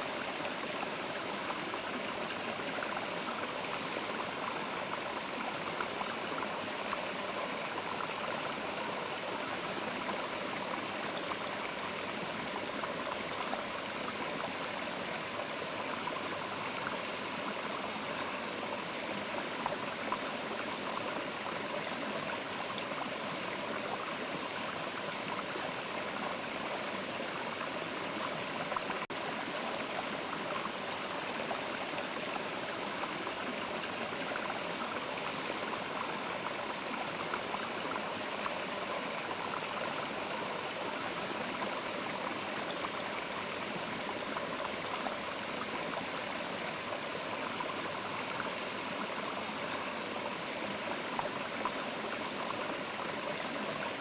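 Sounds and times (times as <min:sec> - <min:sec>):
faint thin high tone: 0:19.9 - 0:29.1.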